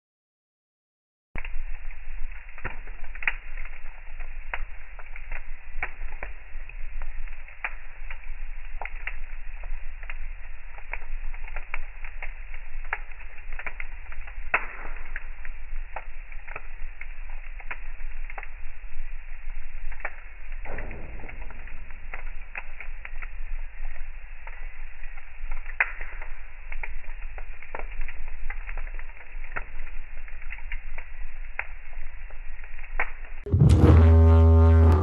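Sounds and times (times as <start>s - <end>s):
fire crackling and popping: 1.4s - 35.0s
low steady rumble: 33.4s - 35.0s.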